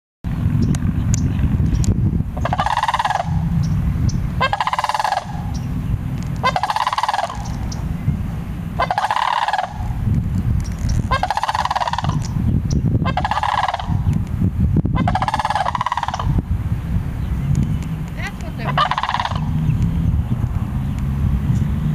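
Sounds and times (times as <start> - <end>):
steady low rumble: 0.2 - 21.9
crane bugle calls: 2.4 - 5.8, 6.4 - 7.9, 8.7 - 10.1, 11.0 - 12.4, 13.0 - 14.1, 15.0 - 16.4, 18.6 - 19.6.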